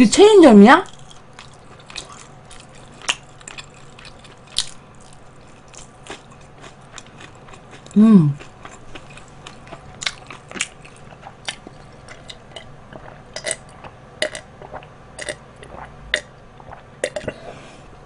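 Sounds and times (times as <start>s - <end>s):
wet chewing with clicks: 0.9s - 17.4s
drink gulps: 12.1s - 17.6s.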